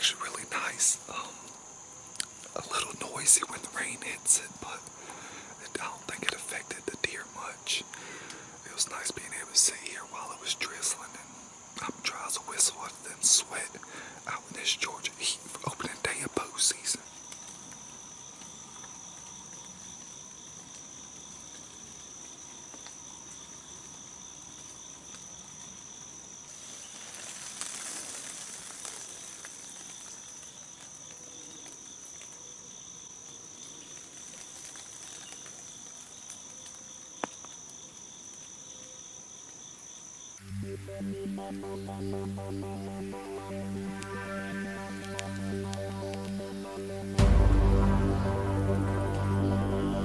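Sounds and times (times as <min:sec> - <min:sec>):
insects buzzing and trilling: 0:00.0 - 0:50.0
rustling noise: 0:26.5 - 0:30.2.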